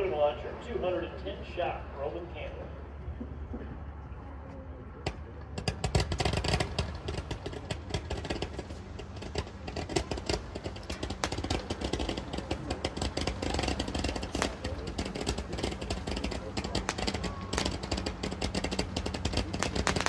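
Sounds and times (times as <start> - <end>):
firework crackling: 5.5 - 20.0.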